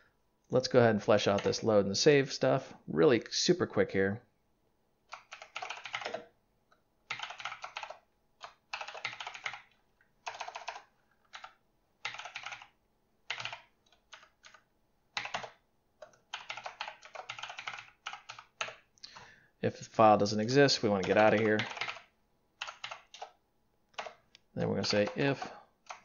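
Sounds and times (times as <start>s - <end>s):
fast typing on keyboard: 1.3s - 1.6s, 5.1s - 6.3s, 7.1s - 18.9s, 20.9s - 24.2s, 24.8s - 26.0s.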